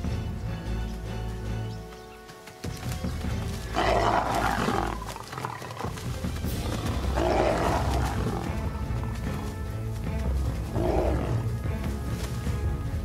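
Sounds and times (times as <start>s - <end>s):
background music: 0.0s - 13.0s
lions snarling: 3.7s - 8.6s, 10.6s - 11.6s.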